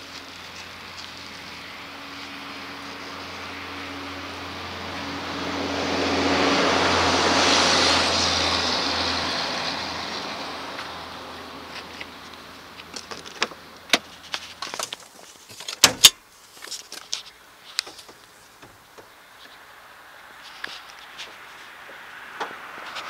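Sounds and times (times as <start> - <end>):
vehicle humming: 0.0 - 16.2, 17.3 - 23.0
car door opening: 15.6 - 16.2.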